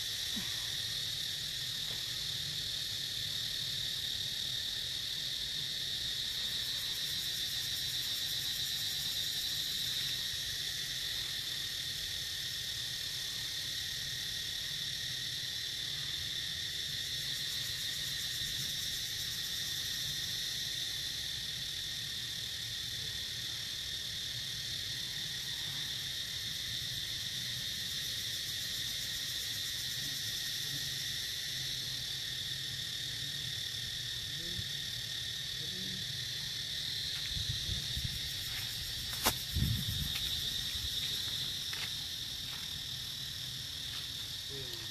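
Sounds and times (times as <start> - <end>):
insects droning: 0.0 - 44.9.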